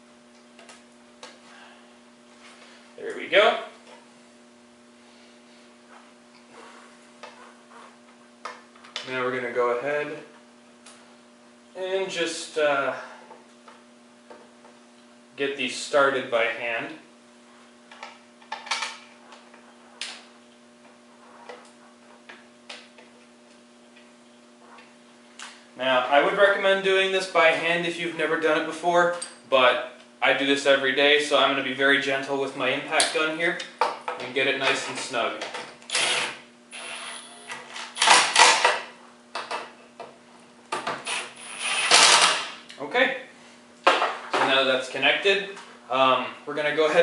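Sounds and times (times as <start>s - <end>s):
steady low hum: 0.0s - 47.0s
pneumatic impact gun bursts: 35.9s - 38.8s, 41.0s - 42.6s.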